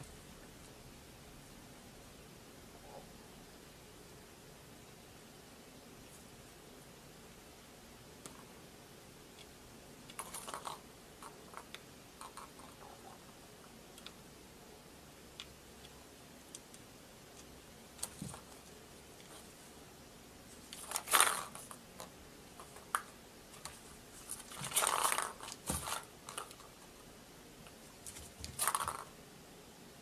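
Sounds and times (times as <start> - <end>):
cat toy clicks and clatters: 9.4 - 13.0, 24.4 - 26.8, 28.1 - 29.1.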